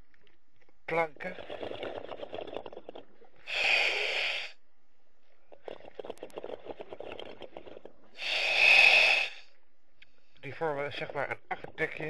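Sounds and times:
exhaled bubbles crackling: 0.0 - 4.5, 5.3 - 9.4, 10.5 - 12.0.

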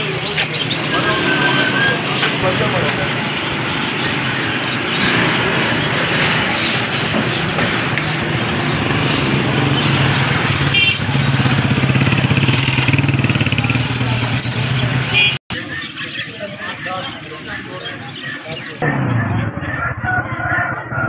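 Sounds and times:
motor traffic: 0.0 - 21.0
people's voices: 0.0 - 21.0
motorcycle engine running: 0.2 - 15.4.

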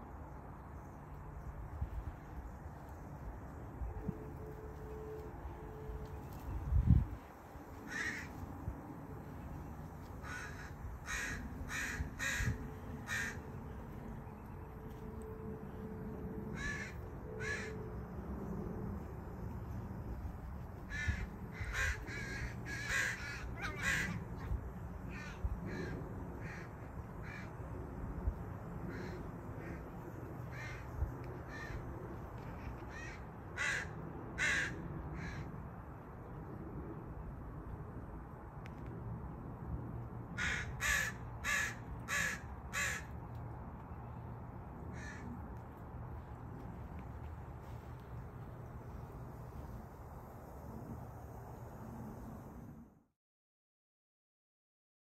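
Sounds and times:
crow cawing: 7.8 - 8.4, 10.1 - 13.5, 16.5 - 17.8, 20.9 - 27.5, 28.9 - 29.8, 30.5 - 30.9, 31.5 - 31.9, 32.7 - 35.5, 40.4 - 43.1, 44.9 - 45.3.

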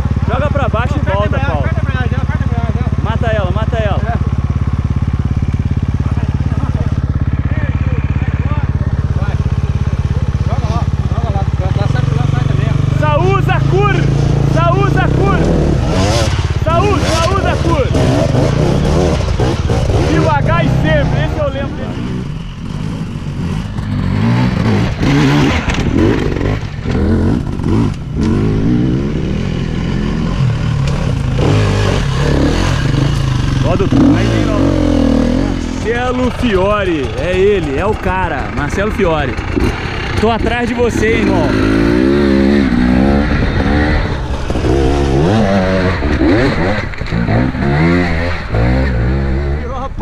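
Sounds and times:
dirt bike engines revving: 0.0 - 50.0.

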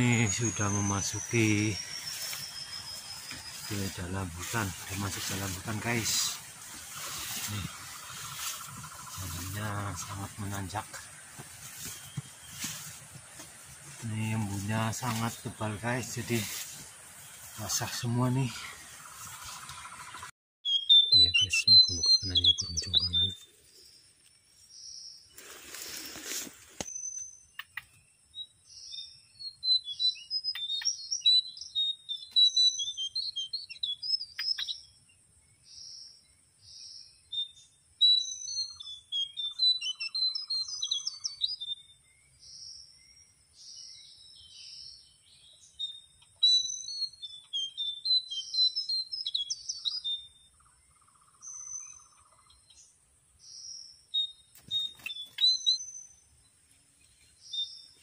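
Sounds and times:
small birds chirping and whistling: 0.0 - 23.9, 24.7 - 58.0
rustle: 1.4 - 20.2, 23.3 - 27.2.

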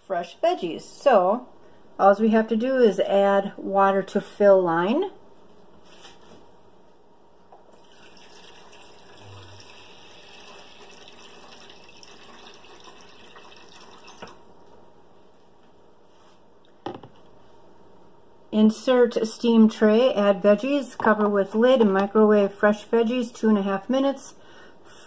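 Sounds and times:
tap water running: 7.7 - 14.5
plastic knocks: 16.8 - 17.2.

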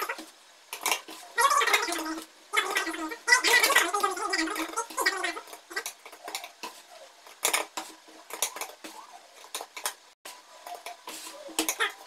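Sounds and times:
metal spoon clinking and scraping: 3.5 - 10.0.

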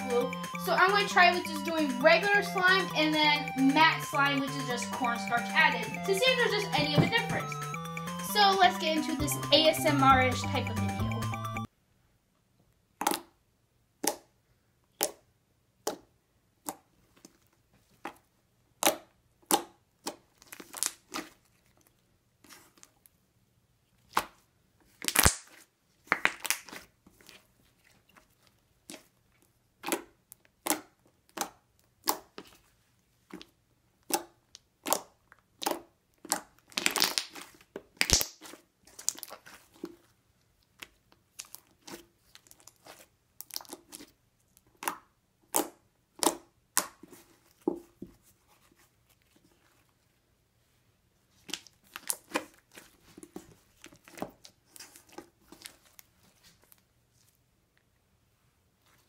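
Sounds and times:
slime squished by hand: 18.8 - 21.5, 24.0 - 27.4, 33.3 - 47.6.

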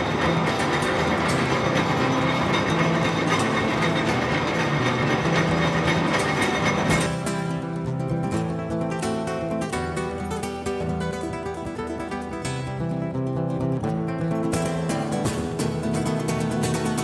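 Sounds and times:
metal lathe clattering: 0.0 - 7.6
guitar music: 0.0 - 17.0.

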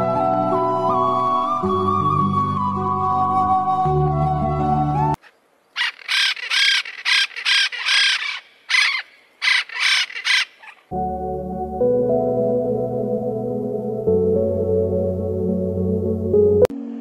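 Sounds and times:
soft background music: 0.0 - 5.2, 10.9 - 17.0
parrots squawking: 5.8 - 10.9.

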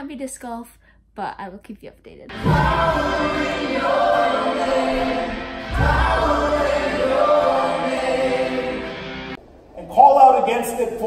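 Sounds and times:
group singing worship song: 2.3 - 9.4
instrumental backing: 2.3 - 9.4.

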